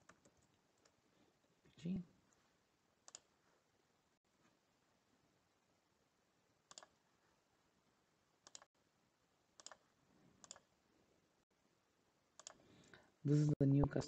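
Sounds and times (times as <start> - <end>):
faint computer mouse clicks: 3.0 - 3.3, 6.7 - 7.0, 8.4 - 8.7, 9.6 - 9.8, 10.4 - 10.7, 12.4 - 12.6.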